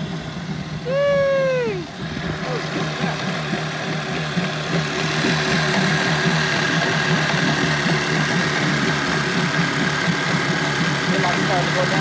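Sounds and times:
outboard motor idling: 0.0 - 12.0.

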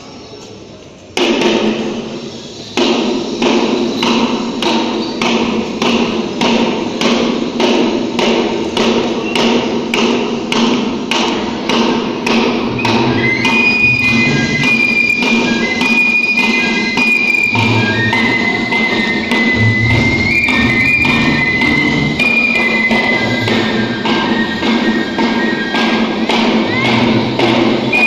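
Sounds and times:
hand drum beating in a hall: 1.2 - 28.0
flute melody: 12.0 - 28.0.

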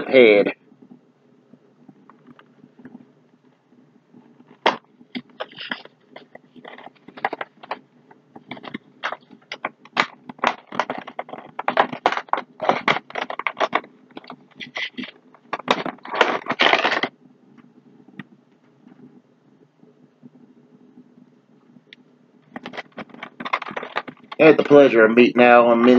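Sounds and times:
cardboard and plastic packaging crackling: 4.5 - 7.8, 8.4 - 17.1, 22.5 - 24.9.

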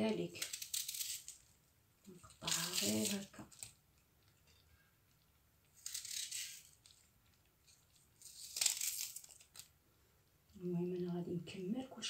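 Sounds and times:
knife cutting onion: 0.2 - 1.4, 5.8 - 6.8.

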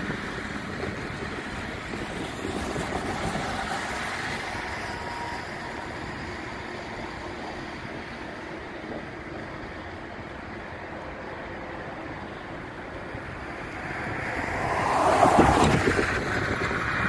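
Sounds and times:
distant road traffic: 0.0 - 17.0
wind on microphone: 0.0 - 17.0.

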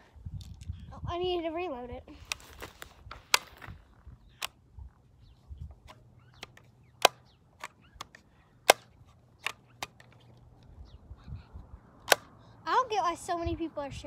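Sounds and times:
bb gun clicks and snaps: 5.9 - 10.4, 12.0 - 12.3.

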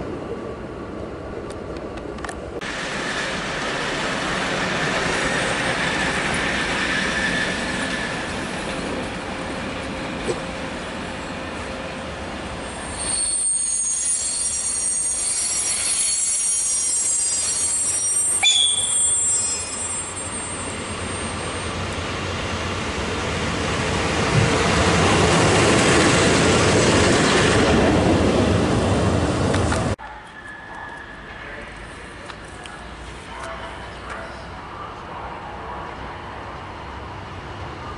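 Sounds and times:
locomotive rumble and rush: 0.0 - 37.9
high thin wheel squeal: 12.6 - 21.7.

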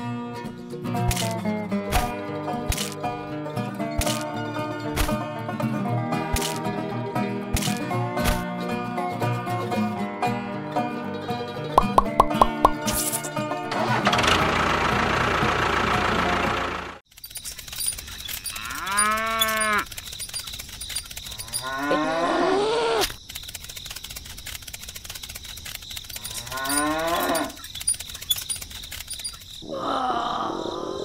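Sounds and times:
cow mooing: 18.5 - 19.9, 21.4 - 23.0, 26.3 - 27.6.

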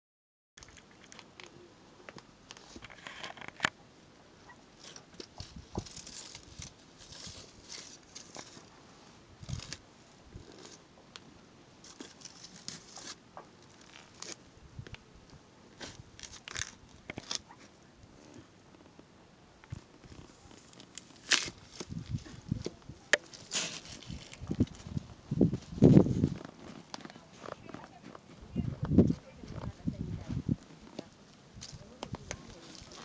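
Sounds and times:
apple crushed under boot: 9.4 - 9.8, 15.8 - 17.5, 19.7 - 25.0.

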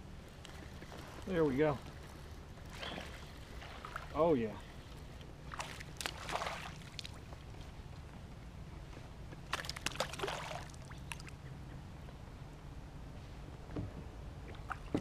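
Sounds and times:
fish splashing in water: 2.7 - 4.2, 5.5 - 7.3, 9.5 - 11.4.

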